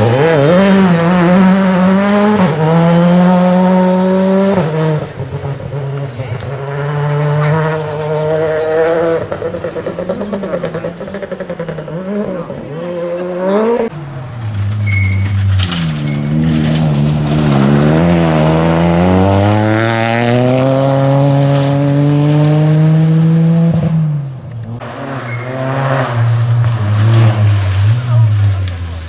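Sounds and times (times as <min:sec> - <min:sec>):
rally car engines revving: 0:00.0 - 0:29.0.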